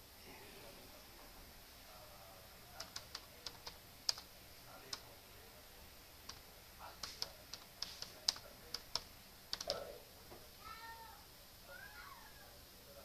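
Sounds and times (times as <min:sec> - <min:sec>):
typing on a keyboard: 0:02.8 - 0:05.1, 0:06.3 - 0:09.8.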